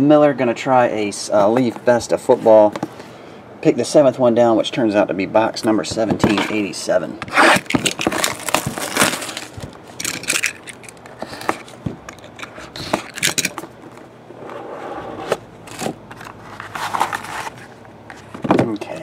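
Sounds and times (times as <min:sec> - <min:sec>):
shrink-wrap crinkling and tearing: 0:07.3 - 0:11.6
cardboard box rustling and scraping: 0:14.3 - 0:18.4.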